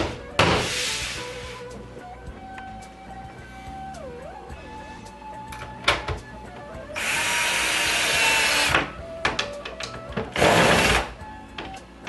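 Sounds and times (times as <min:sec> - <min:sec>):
cordless drill driving screws: 0:07.0 - 0:08.9, 0:10.4 - 0:11.1.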